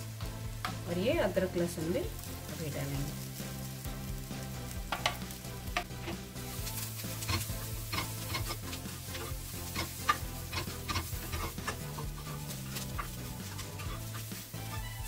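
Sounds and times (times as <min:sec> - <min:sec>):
onions frying in oil: 0:00.0 - 0:15.0
spatula scraping a pan: 0:05.8 - 0:15.0.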